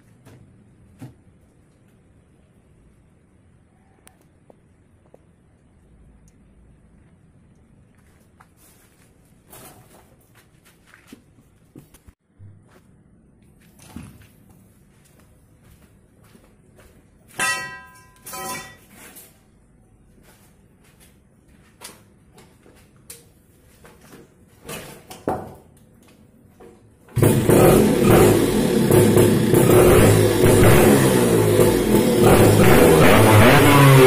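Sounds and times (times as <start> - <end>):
motorbike engine kick-started and revving: 27.1 - 34.0.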